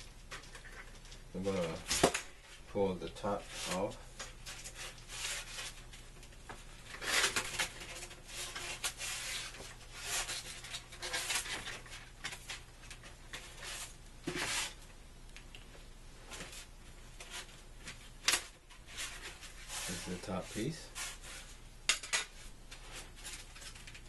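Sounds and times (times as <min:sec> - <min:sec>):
frame scraping and rubbing: 0:18.7 - 0:21.6.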